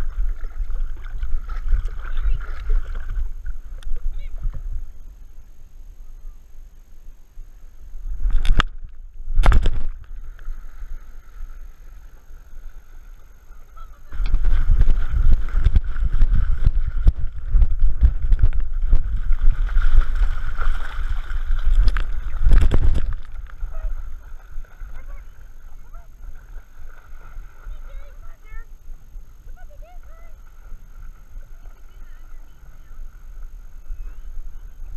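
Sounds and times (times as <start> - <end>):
water splashing around swimming dog: 0.0 - 4.4, 13.6 - 28.7
faint steady whine: 0.0 - 34.9.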